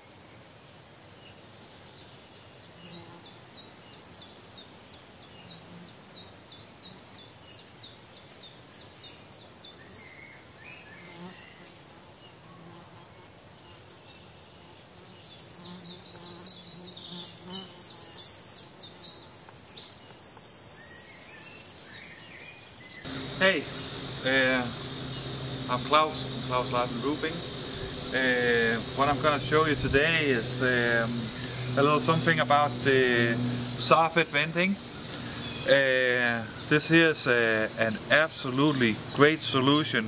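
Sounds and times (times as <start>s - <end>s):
bee buzzing: 11.0s - 13.1s, 14.6s - 18.2s, 23.1s - 40.0s.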